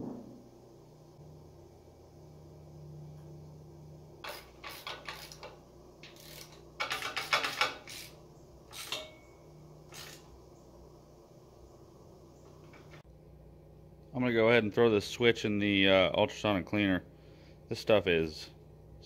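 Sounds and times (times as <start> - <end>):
metal parts and tools clinking: 4.2 - 10.3.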